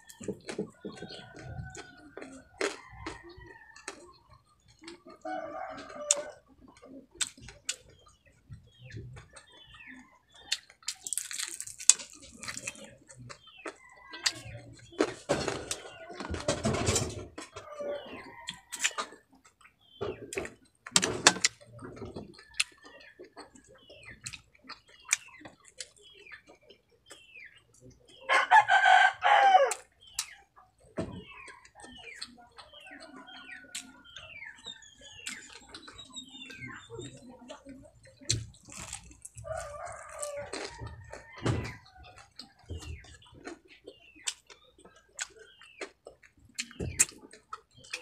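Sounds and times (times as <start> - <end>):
crunching and chewing fried food: 0.0 - 48.0
rooster crowing: 28.3 - 29.8.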